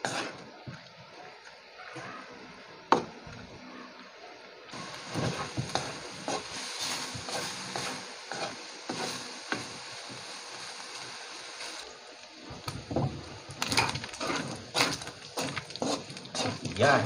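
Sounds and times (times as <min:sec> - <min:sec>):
wooden spatula scraping pan: 0:00.0 - 0:00.4, 0:05.1 - 0:09.7, 0:13.8 - 0:17.0
meat sizzling in a wok: 0:04.7 - 0:17.0.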